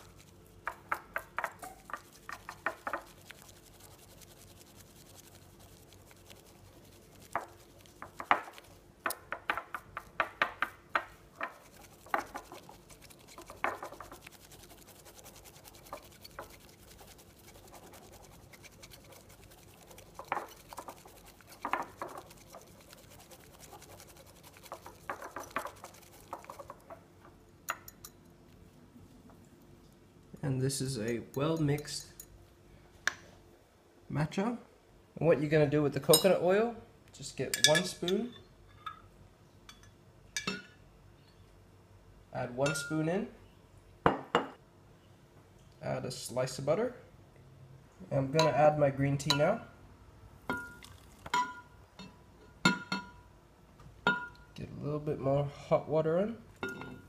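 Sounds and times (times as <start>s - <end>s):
whisk swishing in a ceramic bowl: 0.0s - 10.2s, 11.4s - 27.0s.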